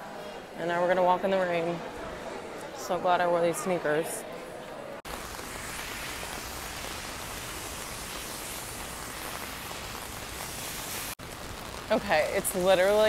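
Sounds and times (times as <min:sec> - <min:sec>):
heavy rain on an umbrella: 0:05.1 - 0:13.0.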